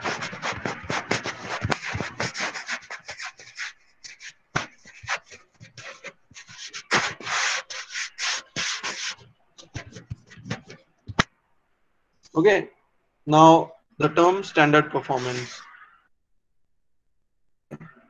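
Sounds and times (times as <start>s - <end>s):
pen scratching on paper: 0.0s - 11.2s, 15.1s - 15.8s.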